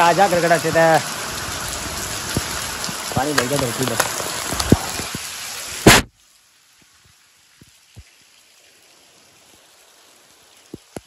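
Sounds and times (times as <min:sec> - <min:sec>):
heavy rain on concrete roof: 0:00.0 - 0:11.0
sharp loud knock: 0:05.8 - 0:06.1.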